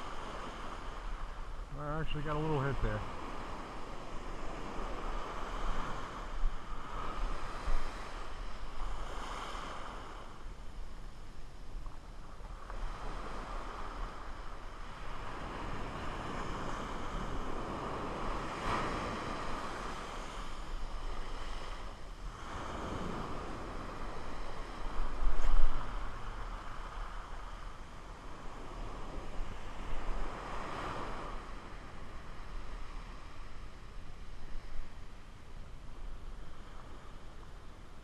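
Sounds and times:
small waves breaking on beach: 0.0 - 38.0.

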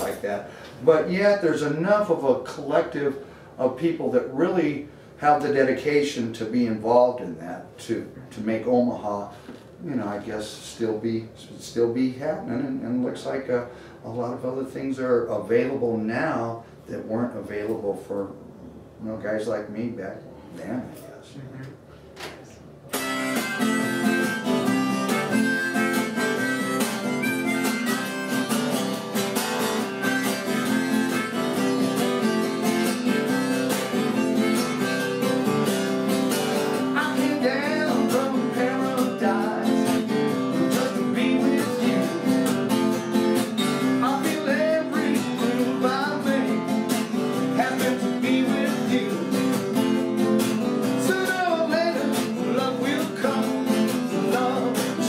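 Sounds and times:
acoustic guitar strumming: 0.0 - 6.8, 22.9 - 55.0
harmonica playing: 22.9 - 55.0.

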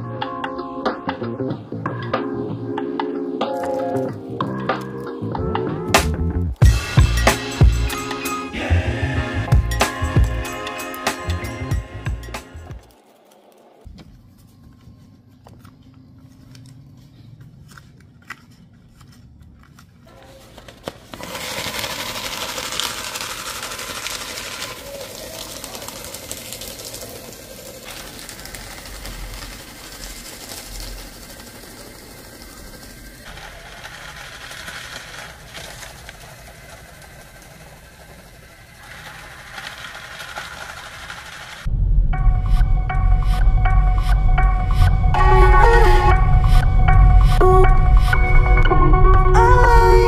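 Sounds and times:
faint clicks and paper handling: 12.8 - 31.8
paper shredder shredding paper: 20.4 - 41.7.

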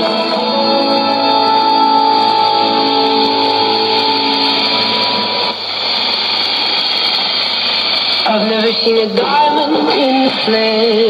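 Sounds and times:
music over radio: 0.0 - 5.6, 8.2 - 11.0
radio static hiss: 0.0 - 11.0.

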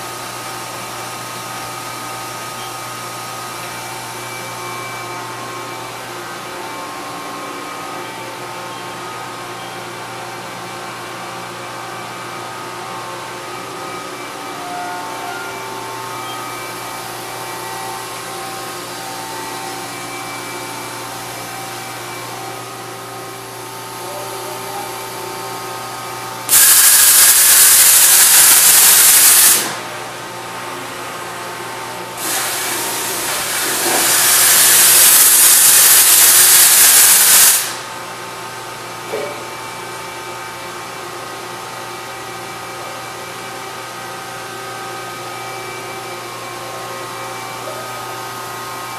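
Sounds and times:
loud machine hisses: 26.5 - 29.9, 32.2 - 38.0.

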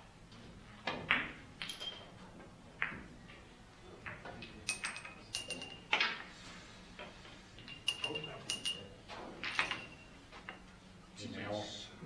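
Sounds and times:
billiard balls clicking: 0.9 - 3.4, 4.0 - 6.3, 7.0 - 8.8, 9.4 - 10.7.

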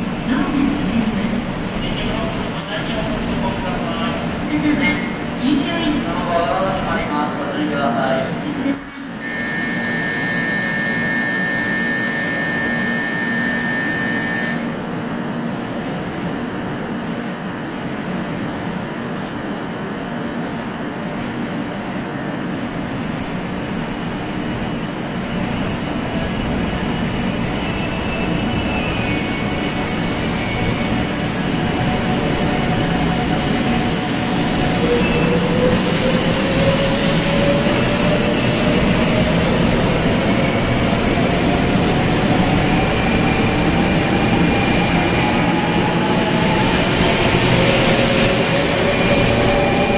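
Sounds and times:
train whine rising in pitch: 9.2 - 14.8.

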